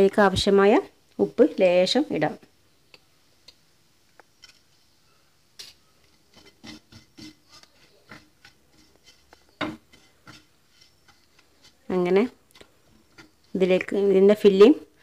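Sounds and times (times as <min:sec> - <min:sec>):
wooden spatula scraping a pan: 0:04.3 - 0:05.0, 0:05.8 - 0:15.0
spatula tapping a pan: 0:05.6 - 0:13.9.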